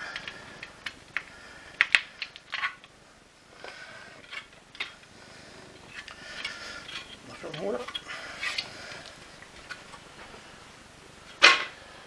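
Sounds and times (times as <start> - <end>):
plastic parts clicking and creaking: 0.0 - 5.1, 5.8 - 10.1.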